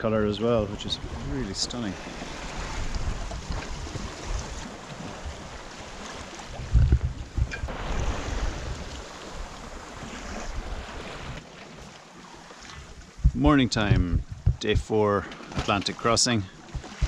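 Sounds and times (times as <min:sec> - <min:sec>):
sea water washing past hull: 0:00.0 - 0:17.0
wind buffeting microphone: 0:02.2 - 0:05.7, 0:06.4 - 0:11.4, 0:12.8 - 0:14.9, 0:16.6 - 0:17.0.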